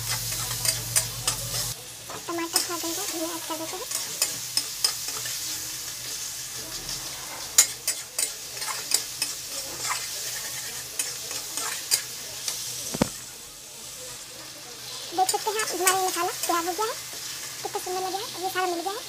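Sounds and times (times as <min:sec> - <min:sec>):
masala sizzling in oil: 0:00.0 - 0:19.0
metal spatula scraping pan: 0:03.8 - 0:12.0.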